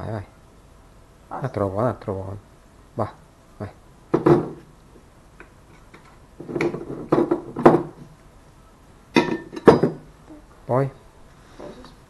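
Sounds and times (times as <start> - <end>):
frying pan knocking on worktop: 4.1 - 4.5
glass bottle knocking on worktop: 4.1 - 4.6, 9.2 - 10.1.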